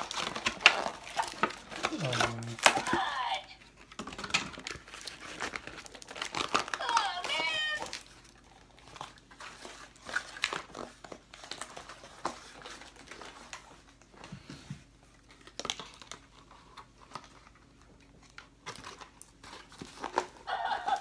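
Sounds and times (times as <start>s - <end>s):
toy packaging crinkling: 0.0s - 13.8s, 18.2s - 21.0s.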